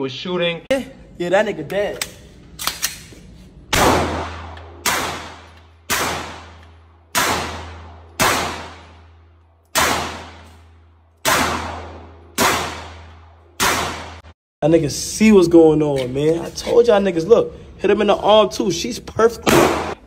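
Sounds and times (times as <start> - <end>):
pistol shots echoing indoors: 3.7 - 14.3, 19.5 - 20.0.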